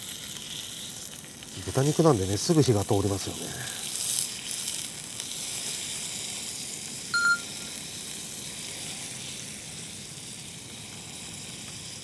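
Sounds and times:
meat sizzling in a frying pan: 0.0s - 12.0s
high ping: 7.2s - 7.7s.

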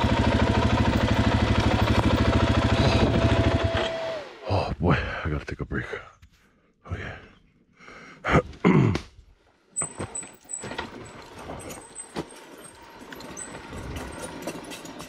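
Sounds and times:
dirt bike engine running: 0.0s - 4.6s, 10.7s - 15.0s
man groaning: 8.2s - 9.1s.

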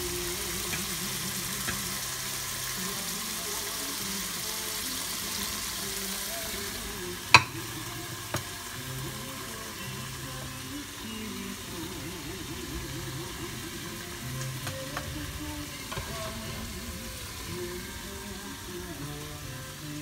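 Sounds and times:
sauce sizzling in a pot: 0.0s - 20.0s
spatula clacking on a plate: 7.4s - 7.6s.

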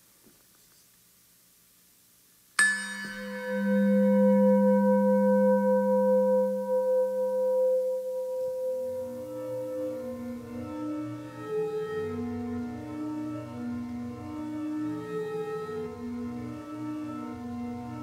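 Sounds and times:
singing bowl ringing: 2.6s - 11.0s
soft pitched tones: 2.6s - 18.0s.

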